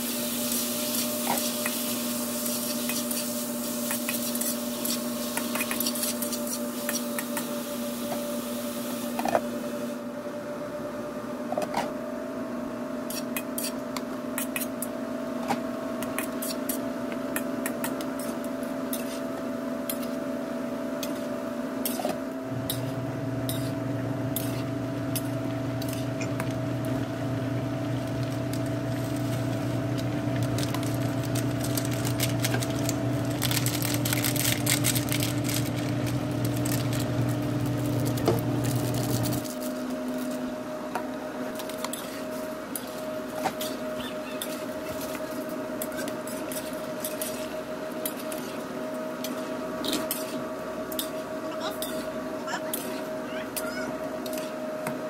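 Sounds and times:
chicken sizzling in a pan: 0:00.0 - 0:09.1
electrical hum: 0:00.0 - 0:55.0
deeper hum: 0:22.4 - 0:39.4.

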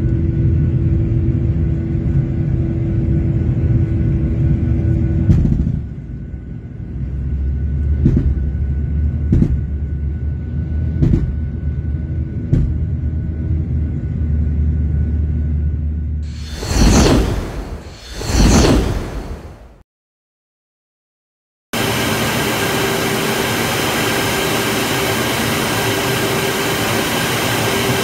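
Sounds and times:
low engine rumble: 0:00.0 - 0:18.1
jet engine drone: 0:00.0 - 0:19.8, 0:21.8 - 0:28.0
loud engine bangs: 0:07.9 - 0:09.9, 0:12.4 - 0:13.0.

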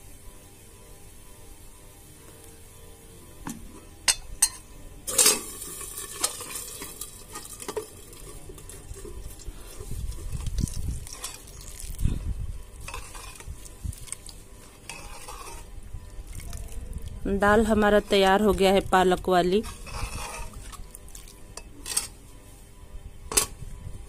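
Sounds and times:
hot oil sizzling and spluttering: 0:05.4 - 0:09.4, 0:10.0 - 0:12.0.

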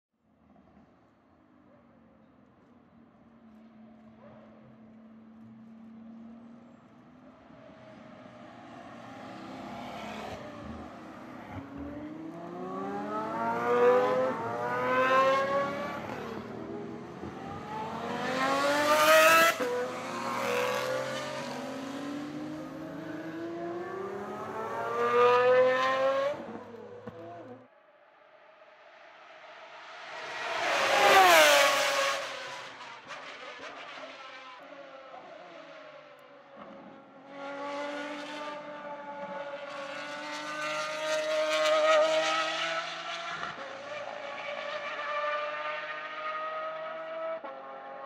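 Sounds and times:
car engines accelerating hard: 0:07.5 - 0:27.7, 0:29.9 - 0:48.0.

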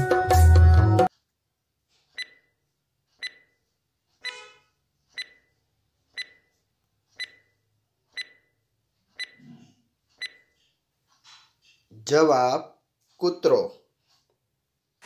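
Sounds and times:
timer ticking with beeps: 0:02.2 - 0:02.6, 0:03.2 - 0:03.6, 0:04.2 - 0:06.6, 0:07.2 - 0:09.5, 0:10.1 - 0:10.6.

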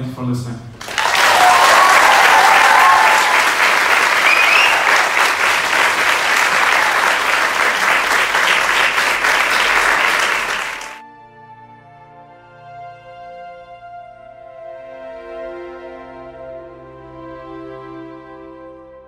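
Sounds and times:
audience applauding: 0:00.8 - 0:11.0
audience cheering: 0:00.8 - 0:11.0.

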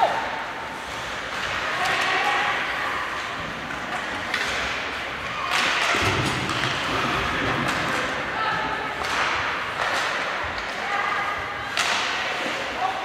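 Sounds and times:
players clattering at the net: 0:03.7 - 0:08.2, 0:09.0 - 0:10.8, 0:11.7 - 0:12.6.

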